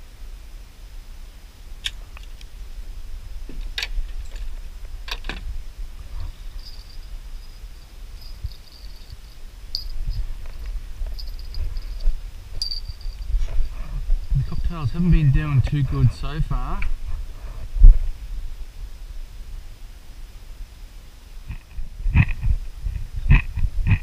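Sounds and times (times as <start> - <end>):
insects chirping: 2.1 - 16.4
wind rumble on microphone: 2.1 - 19.8, 21.4 - 24.0.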